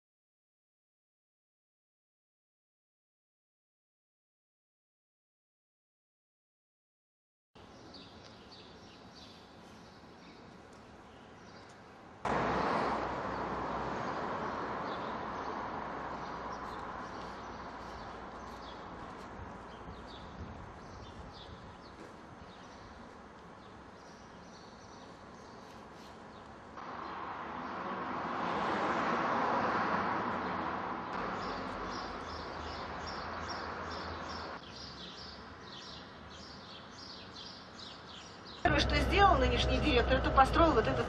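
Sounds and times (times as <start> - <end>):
small birds chirping: 7.6 - 12.1, 12.9 - 26.7, 30.5 - 41.0.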